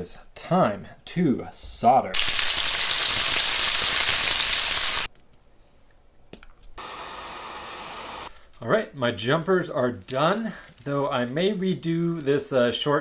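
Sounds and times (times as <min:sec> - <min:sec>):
heat gun hissing: 0:02.2 - 0:05.1, 0:06.8 - 0:08.3.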